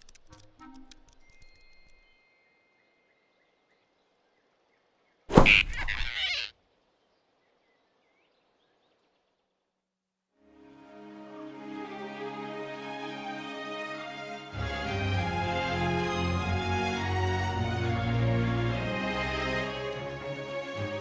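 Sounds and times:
faint forest ambience: 1.2s - 21.0s.

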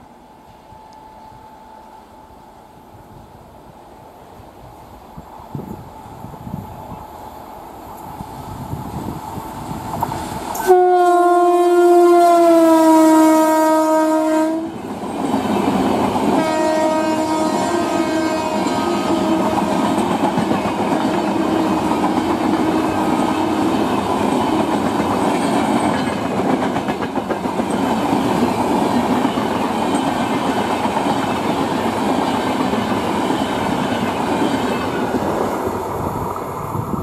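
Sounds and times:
train wheels clickety-clack on rails: 8.0s - 10.8s, 14.5s - 37.0s.

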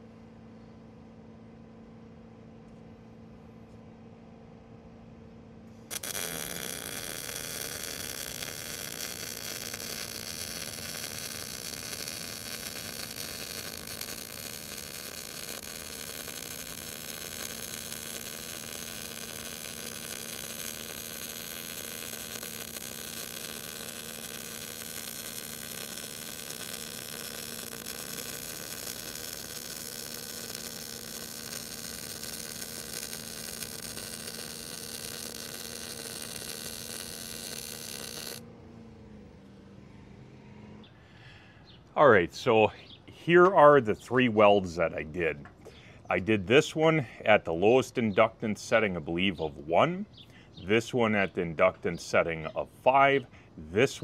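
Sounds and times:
faint low hum: 0.0s - 54.0s
welding arc hissing: 5.8s - 38.4s.

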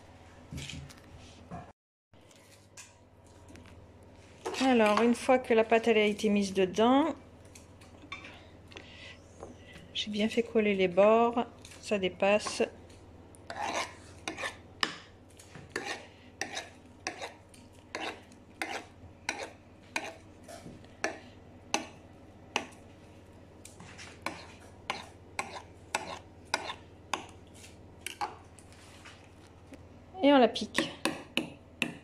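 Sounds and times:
knife scraping glass dish rim: 13.5s - 14.6s, 15.7s - 20.6s, 24.2s - 26.8s.

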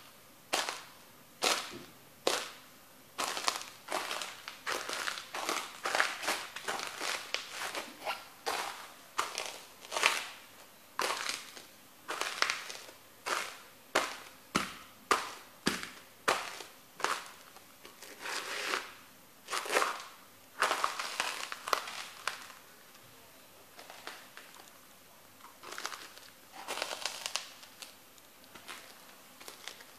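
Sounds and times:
breadsticks crunching under boots: 3.2s - 14.3s, 19.5s - 22.7s, 25.4s - 29.9s.

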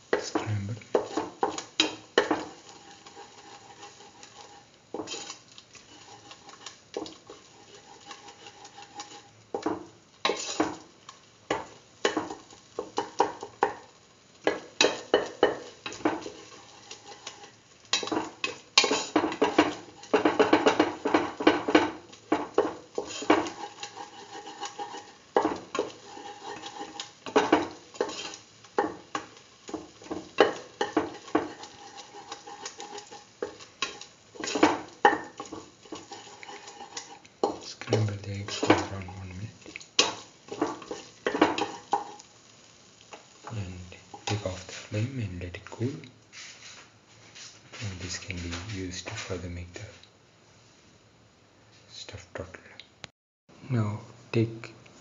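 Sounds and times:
spatula scraping metal pan: 0.9s - 10.8s, 14.5s - 39.3s, 40.0s - 42.3s.

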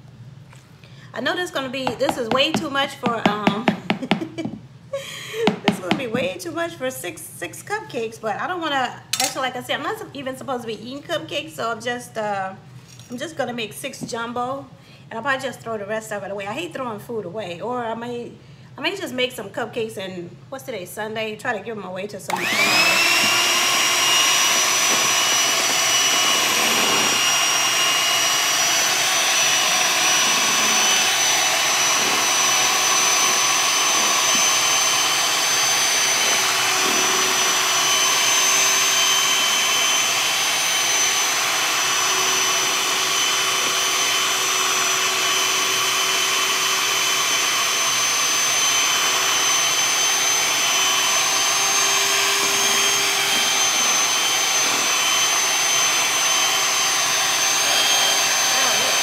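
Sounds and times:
electric mixer whining: 22.3s - 59.0s.

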